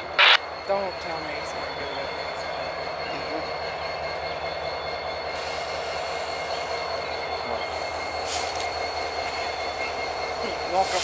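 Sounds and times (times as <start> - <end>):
faint high whine: 0.0 - 2.3
diesel locomotives rumbling: 0.0 - 11.0.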